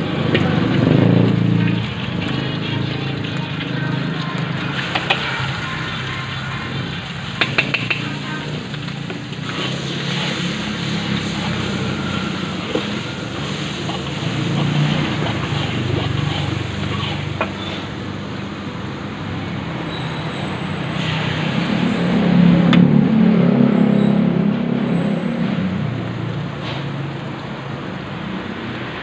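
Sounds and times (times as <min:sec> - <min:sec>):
food frying: 0:00.0 - 0:19.8
metal spatula scraping wok: 0:00.2 - 0:18.2.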